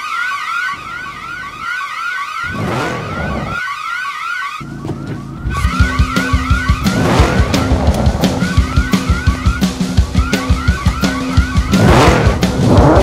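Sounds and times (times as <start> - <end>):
burglar alarm whooping: 0.0 - 4.7
higher warbling alarm tone: 0.0 - 13.0.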